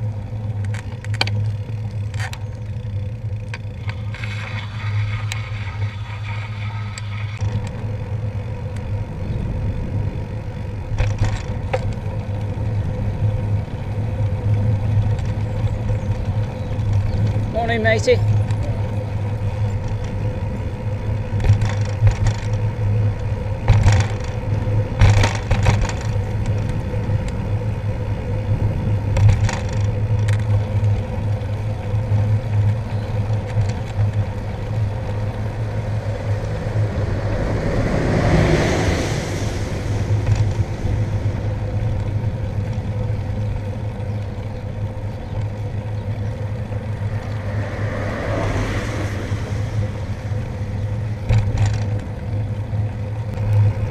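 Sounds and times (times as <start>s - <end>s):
wind and road rumble: 0.0s - 53.9s
rushing noise: 3.8s - 7.9s, 34.7s - 42.7s, 46.4s - 51.7s
sharp knocks and rattles: 23.6s - 24.4s, 25.0s - 26.7s.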